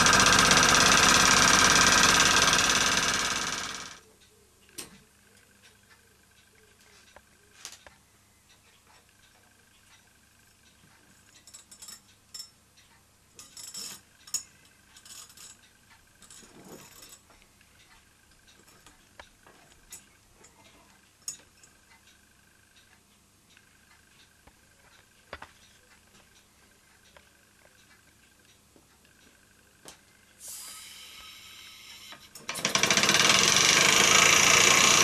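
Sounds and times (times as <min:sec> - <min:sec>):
toy steam engine ticking: 0:00.0 - 0:04.4, 0:30.5 - 0:35.0
short bursts of hiss: 0:30.4 - 0:32.2.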